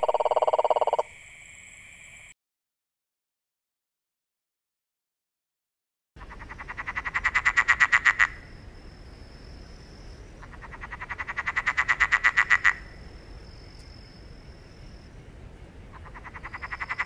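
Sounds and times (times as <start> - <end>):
frog calling: 0.0 - 1.1, 6.2 - 8.6, 10.2 - 13.0, 15.9 - 17.0.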